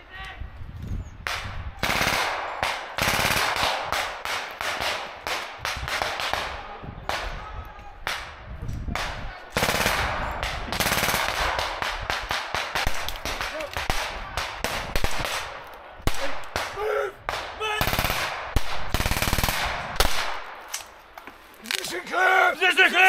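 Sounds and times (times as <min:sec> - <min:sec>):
gunshots: 0:01.3 - 0:07.3, 0:08.0 - 0:20.7
automatic gunfire bursts: 0:01.8 - 0:05.0, 0:09.6 - 0:13.0, 0:17.8 - 0:20.4.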